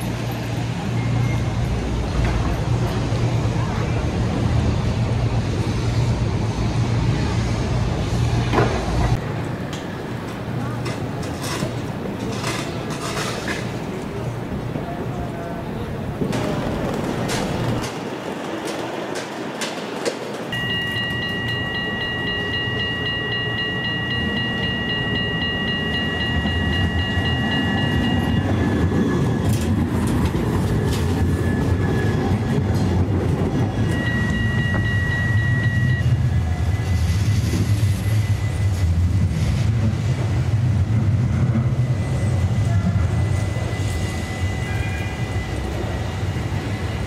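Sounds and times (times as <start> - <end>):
low tram rumble: 0.0 - 47.0
tram rail clicks: 1.8 - 3.0, 8.5 - 36.3
high-pitched tram wheel squeal: 20.5 - 40.0, 41.4 - 47.0.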